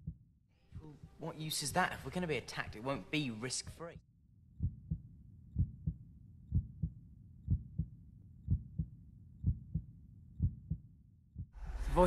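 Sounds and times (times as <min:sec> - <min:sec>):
human heartbeat: 0:00.0 - 0:00.2, 0:04.6 - 0:05.0, 0:05.6 - 0:07.9, 0:08.5 - 0:10.8.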